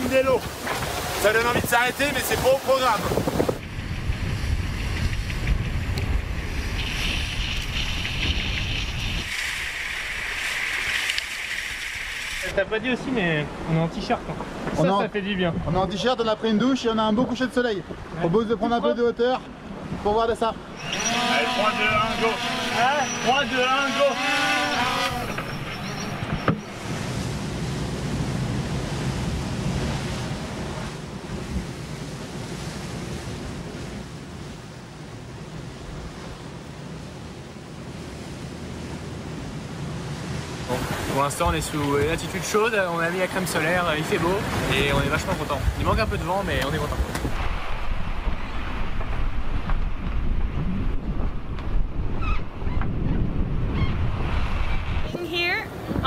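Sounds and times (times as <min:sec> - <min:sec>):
wind buffeting microphone: 0:00.0 - 0:10.9, 0:19.5 - 0:56.0
sea rushing along hull: 0:00.0 - 0:56.0
faint high drone whine: 0:20.8 - 0:26.9.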